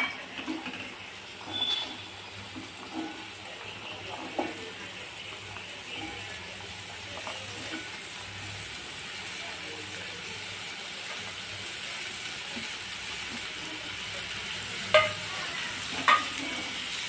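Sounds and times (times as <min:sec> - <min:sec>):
food sizzling in oil: 0:00.0 - 0:17.0
pieces knocking in pan: 0:14.9 - 0:16.5.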